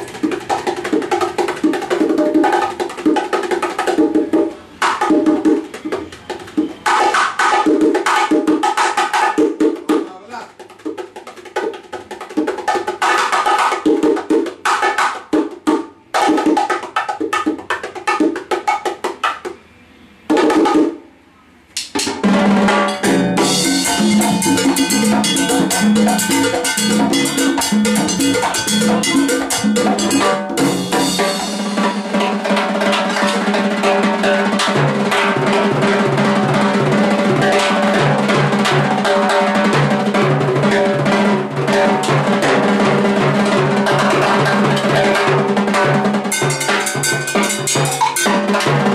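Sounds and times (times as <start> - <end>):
bongo playing: 0.0 - 19.6, 20.3 - 21.1, 21.8 - 48.9
timbales cymbal and cowbell groove: 22.7 - 34.9, 43.9 - 48.9.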